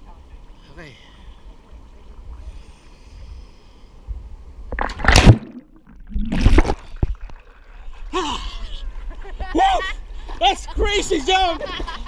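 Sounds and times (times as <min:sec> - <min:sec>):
splashing water: 0:04.7 - 0:07.8
loud splash into river: 0:04.8 - 0:07.1.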